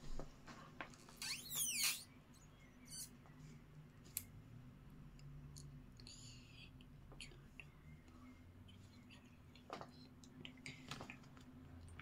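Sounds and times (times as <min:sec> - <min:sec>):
faint low hum: 0:00.0 - 0:12.0
high squeak falling in pitch: 0:01.2 - 0:02.1.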